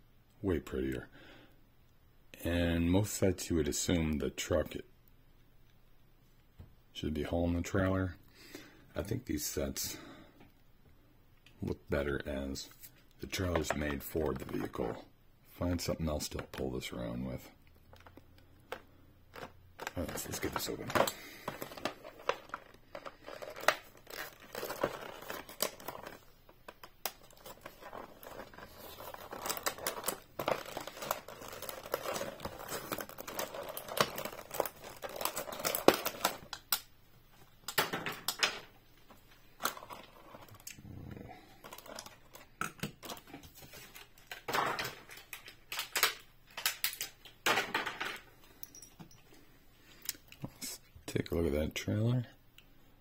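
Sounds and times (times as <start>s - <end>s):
plastic packaging crinkling and tearing: 17.7s - 36.9s, 41.6s - 47.3s.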